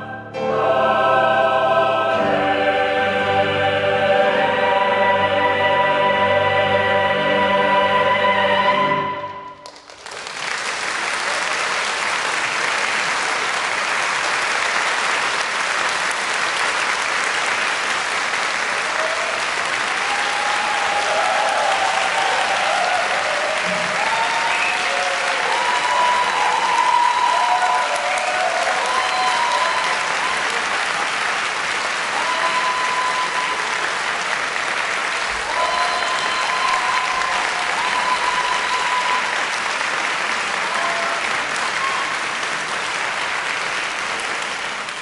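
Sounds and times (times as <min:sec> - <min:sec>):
audience applauding: 0:09.5 - 0:45.0.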